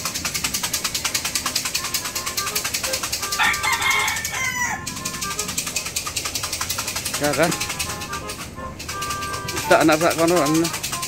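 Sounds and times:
rooster crowing: 3.2s - 5.5s.

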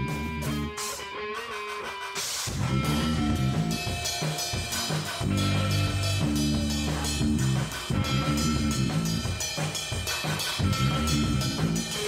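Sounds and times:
low bass notes: 0.0s - 0.8s, 2.5s - 3.8s, 5.2s - 9.3s, 10.6s - 12.0s
drum kit beat: 0.0s - 12.0s.

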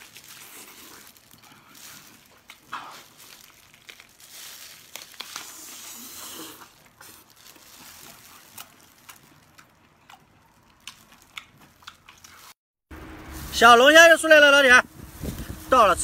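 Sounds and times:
meat tearing apart: 0.0s - 12.5s
plastic gloves crinkling: 0.0s - 12.6s, 13.2s - 16.0s.

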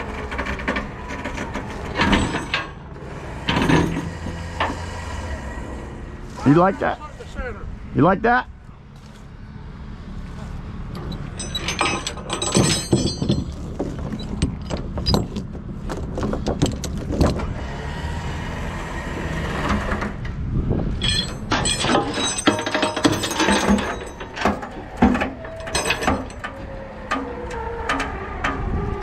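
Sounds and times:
chain clanking on metal frame: 0.0s - 4.8s, 10.9s - 17.6s, 20.9s - 27.3s
steady low rumble: 20.2s - 26.4s.

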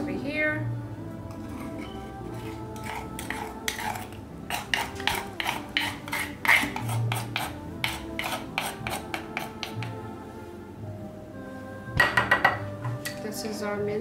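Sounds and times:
soft background music: 0.0s - 14.0s
wooden spoon scraping stone mortar: 1.3s - 10.0s.

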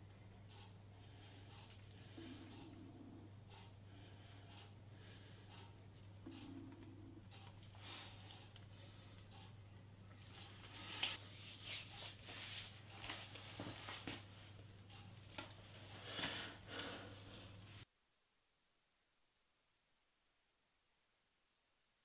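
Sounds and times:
steady low hum: 0.0s - 17.9s
faint rustling and clicking: 12.3s - 17.9s.

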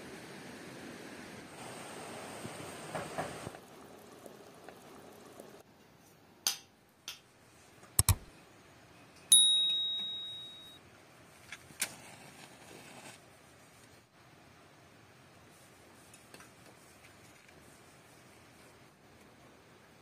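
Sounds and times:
bright metallic ding: 9.3s - 10.8s.

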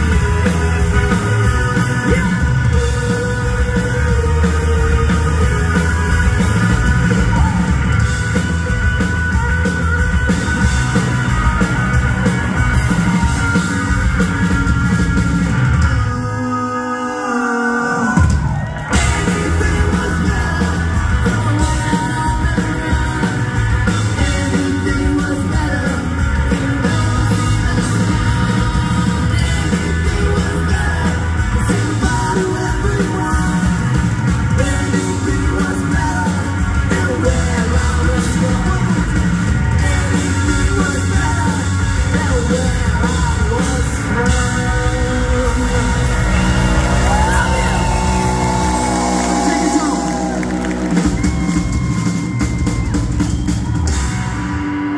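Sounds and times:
live ska punk band playing: 0.0s - 54.9s.

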